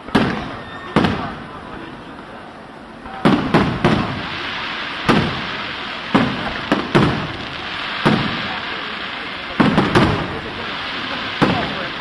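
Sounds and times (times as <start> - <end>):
continuous background noise: 0.0 - 12.0
firework shells bursting: 3.1 - 12.0.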